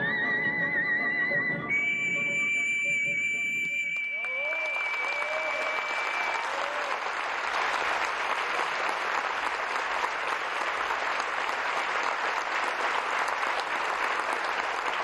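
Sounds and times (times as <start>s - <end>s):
audience applauding: 3.8s - 15.0s.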